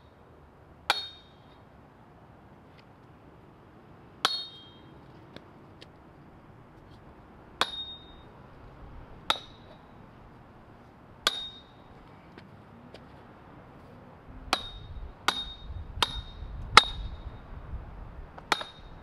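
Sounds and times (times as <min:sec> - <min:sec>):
hammer striking steel: 0:00.9 - 0:01.4, 0:04.2 - 0:04.9, 0:07.6 - 0:08.3, 0:09.3 - 0:09.8, 0:11.2 - 0:11.9, 0:14.5 - 0:17.1, 0:18.5 - 0:19.0.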